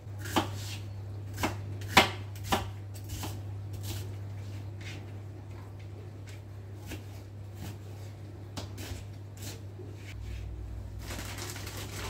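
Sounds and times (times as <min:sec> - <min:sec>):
knife chopping onion on board: 0:00.2 - 0:04.1, 0:06.3 - 0:07.8
low hum: 0:10.2 - 0:12.0.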